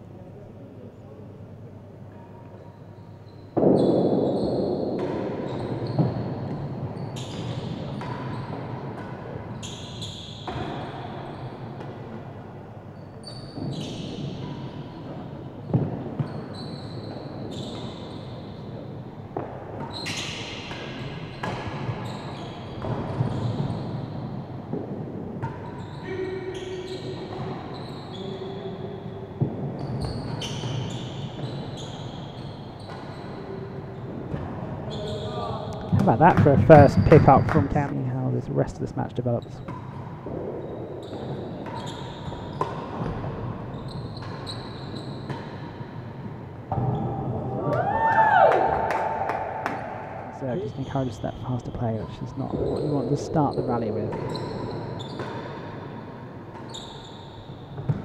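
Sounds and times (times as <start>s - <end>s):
shoes squeaking: 5.4s - 11.6s, 12.9s - 24.4s, 25.6s - 29.0s, 29.8s - 38.4s, 39.2s - 47.1s, 50.4s - 58.0s.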